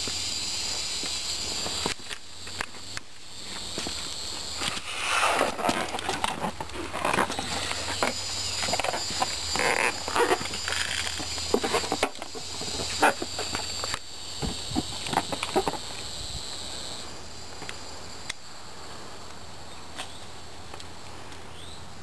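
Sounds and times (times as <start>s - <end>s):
insects droning: 0.0s - 22.0s
rustling and clicking: 1.0s - 16.1s.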